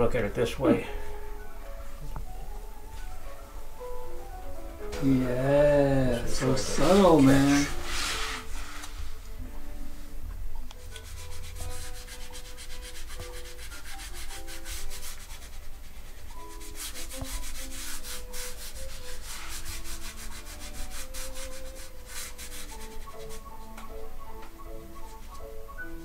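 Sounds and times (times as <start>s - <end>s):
faint background music: 0.0s - 26.0s
rapid scratchy rubbing strokes: 6.1s - 9.2s, 10.8s - 23.6s.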